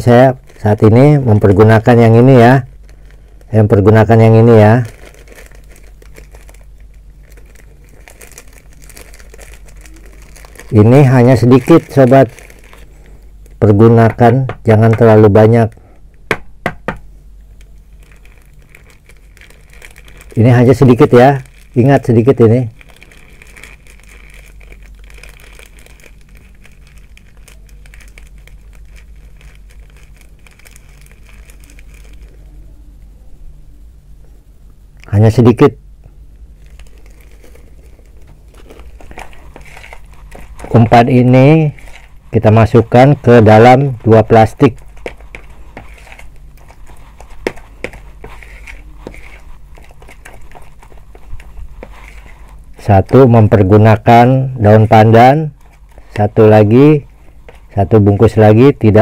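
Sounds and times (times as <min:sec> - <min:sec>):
granules sprinkled crackling: 0:00.0 - 0:16.3, 0:17.2 - 0:59.0.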